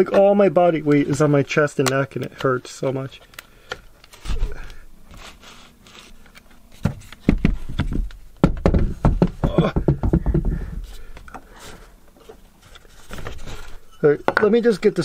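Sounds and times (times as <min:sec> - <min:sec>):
knocks and taps on wood: 0:06.8 - 0:10.8.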